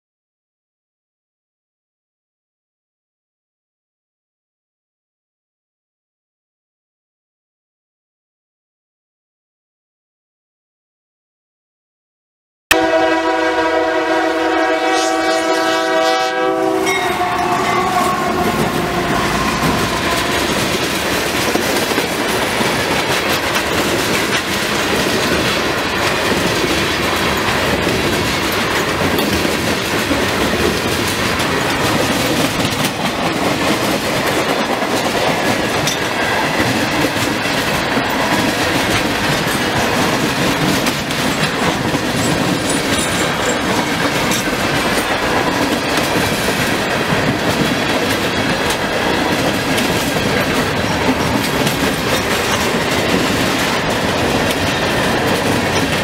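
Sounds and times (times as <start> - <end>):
locomotive air horn chord: 12.7 - 20.9
train rumbling past: 12.8 - 56.0
wheels clacking over rail joints: 16.5 - 56.0.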